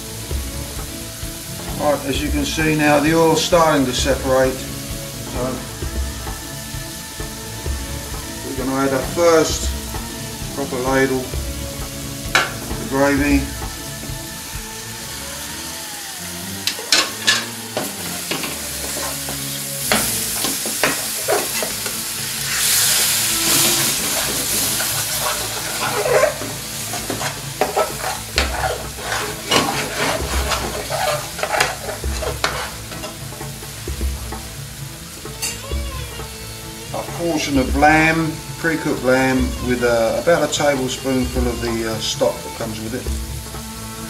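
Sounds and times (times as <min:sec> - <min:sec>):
curry sizzling in oil: 0:00.0 - 0:44.0
metal spoon scraping frying pan: 0:16.6 - 0:33.6.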